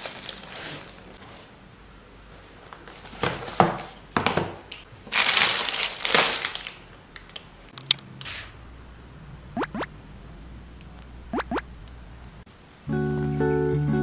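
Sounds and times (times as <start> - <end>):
plastic packaging crinkling: 0.0 - 1.2, 5.1 - 7.5.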